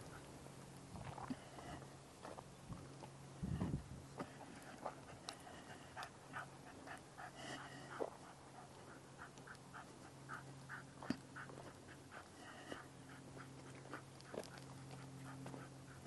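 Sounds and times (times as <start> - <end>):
dog panting: 3.6 - 16.0.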